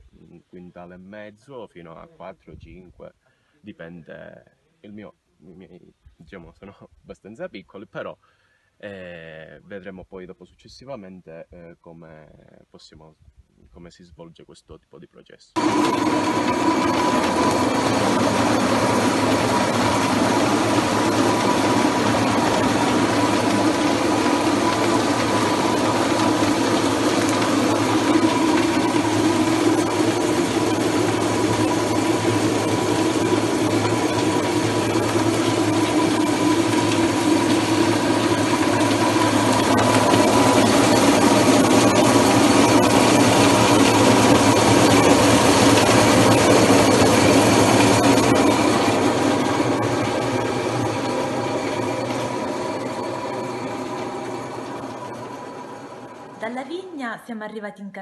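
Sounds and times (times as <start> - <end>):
motor hum with whine: 15.6 - 56.5.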